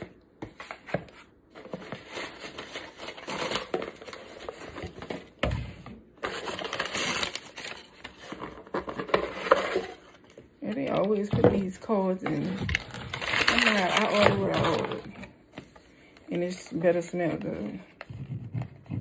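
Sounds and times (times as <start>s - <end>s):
packaging rustling and scraping: 0.4s - 19.0s
cardboard box being torn open: 12.7s - 15.0s.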